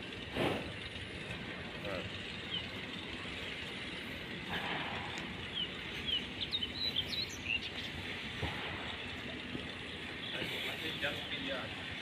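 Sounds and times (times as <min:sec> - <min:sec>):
outdoor background noise: 0:00.0 - 0:12.0
small birds chirping: 0:01.8 - 0:04.5, 0:05.1 - 0:12.0.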